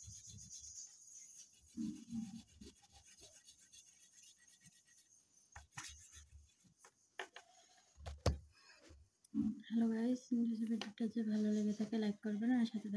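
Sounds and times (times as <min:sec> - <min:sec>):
pencil scratching on paper: 0:00.0 - 0:07.7.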